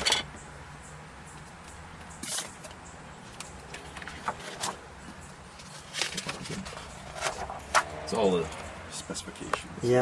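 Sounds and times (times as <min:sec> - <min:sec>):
book pages turning: 0:05.6 - 0:07.9.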